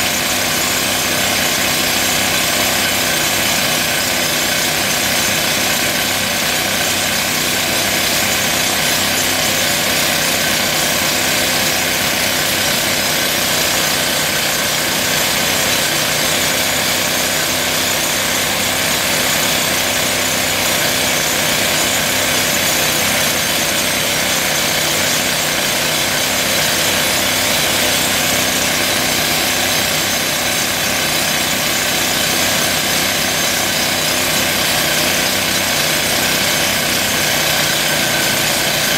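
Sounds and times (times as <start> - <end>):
pneumatic rock drill hammering: 0.0 - 38.9.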